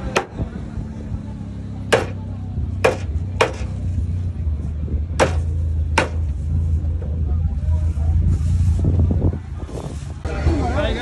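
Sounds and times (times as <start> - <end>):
machete chopping on wooden board: 0.0 - 0.4, 1.9 - 2.2, 2.8 - 3.8, 5.2 - 6.3.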